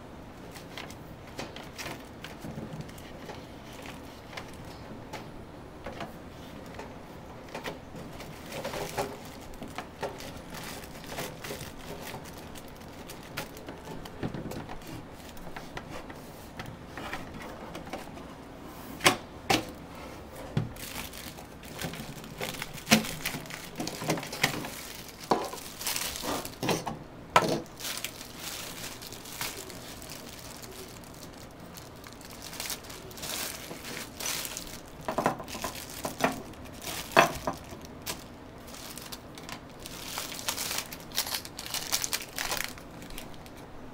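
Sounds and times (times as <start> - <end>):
packaging crinkling: 0.4 - 4.8, 7.6 - 15.7, 20.7 - 26.8, 27.5 - 43.6.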